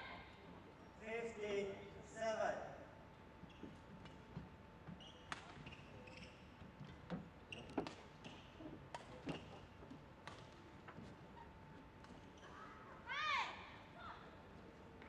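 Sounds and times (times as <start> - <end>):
shoes squeaking on court floor: 3.4 - 13.0.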